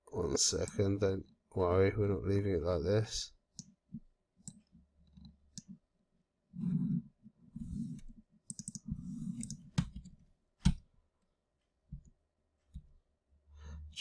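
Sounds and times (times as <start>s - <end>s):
computer mouse clicking: 8.0s - 10.8s.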